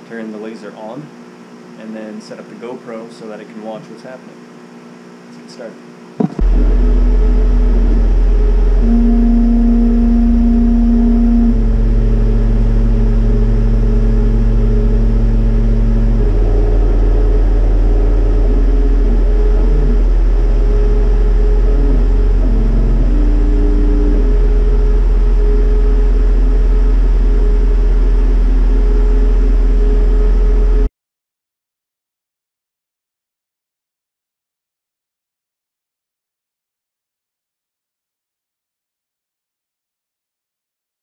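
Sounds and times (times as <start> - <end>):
machine low hum: 0.0 - 30.9
stepper motors whining: 6.2 - 30.8.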